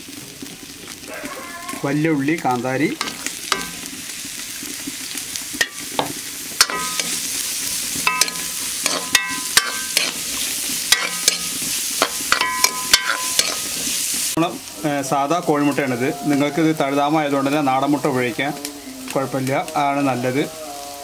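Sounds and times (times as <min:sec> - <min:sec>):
onions sizzling in hot oil: 0:00.0 - 0:21.0
spatula scraping a pan: 0:03.0 - 0:04.0, 0:05.6 - 0:14.3.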